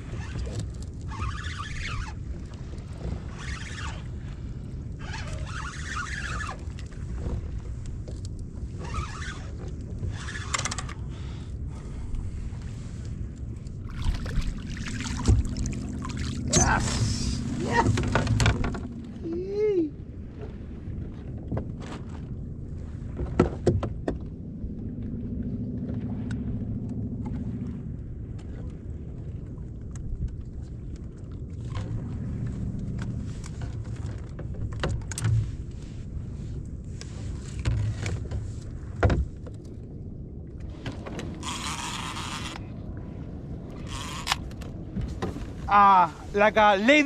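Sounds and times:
wind rumbling on microphone: 0.0s - 47.0s
low rumble: 11.1s - 21.1s, 23.9s - 30.4s, 31.2s - 36.9s
fishing reel whirring: 41.4s - 42.6s, 43.8s - 44.4s.

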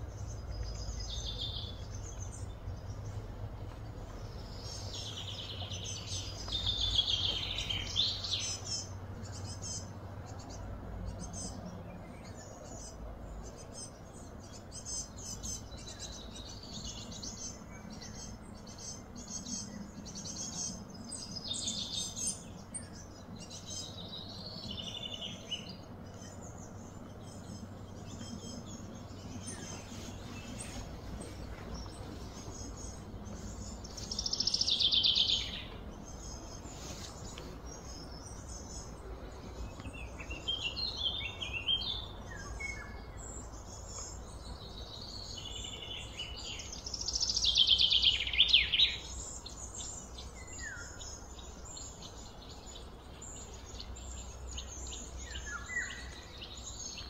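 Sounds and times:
steady low rumble: 0.0s - 47.5s
birds chirping and calling: 0.0s - 57.0s.

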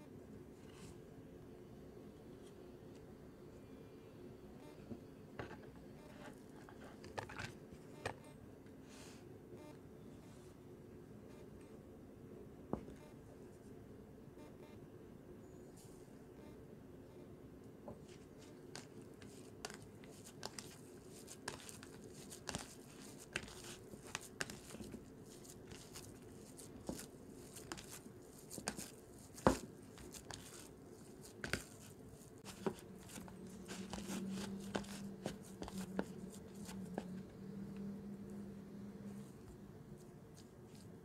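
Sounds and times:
low steady hum: 0.0s - 41.0s
hand kneading raw meat: 18.1s - 37.2s.

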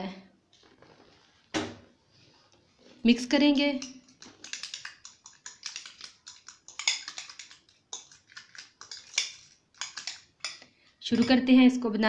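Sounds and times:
metal spoon scraping glass bowl: 3.6s - 11.5s.

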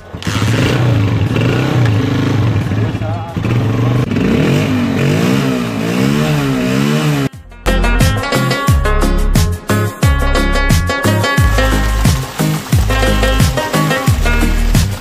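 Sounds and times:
motorcycle engine revving: 0.0s - 7.4s.

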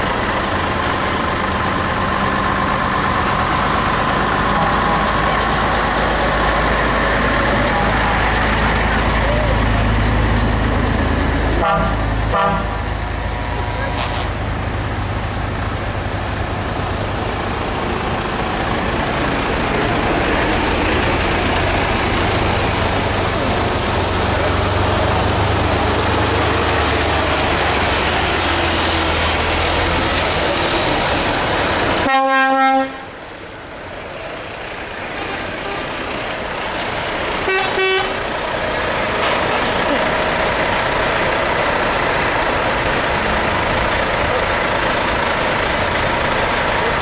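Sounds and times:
trucks driving past: 0.0s - 47.0s
truck horn blast: 11.6s - 12.8s, 32.0s - 33.2s, 35.2s - 35.9s, 37.4s - 38.2s.

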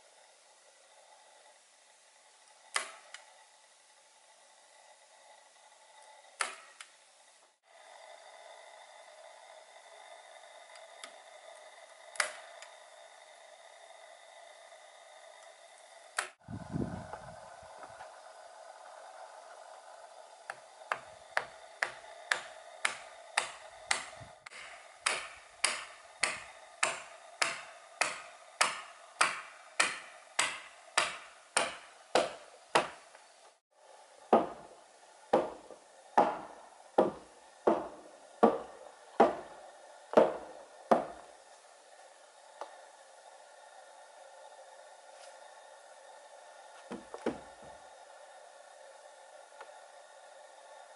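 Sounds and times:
hammer striking wooden peg: 2.7s - 3.2s, 6.4s - 6.9s, 12.1s - 12.6s, 20.5s - 33.2s, 34.3s - 41.3s.

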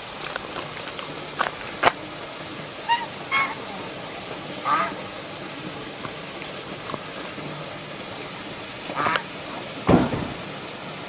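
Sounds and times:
duck quacking: 2.8s - 4.0s, 4.6s - 5.1s, 8.9s - 9.3s.

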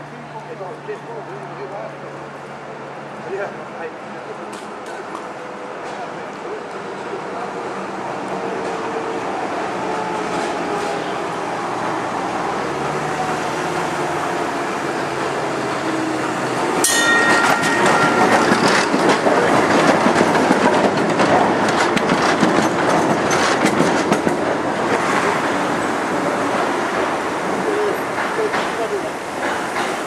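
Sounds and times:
tram rumbling: 0.0s - 30.0s
sharp metallic clang: 16.8s - 18.9s.

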